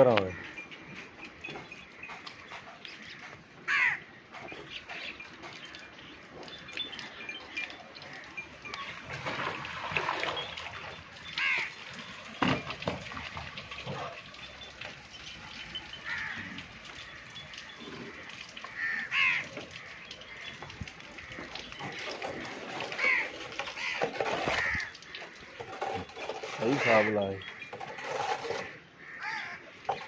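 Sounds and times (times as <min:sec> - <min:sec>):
farmyard background noise: 0:00.0 - 0:30.0
crows cawing: 0:03.1 - 0:04.1, 0:11.4 - 0:11.8, 0:16.0 - 0:25.7, 0:26.6 - 0:27.7, 0:28.6 - 0:30.0.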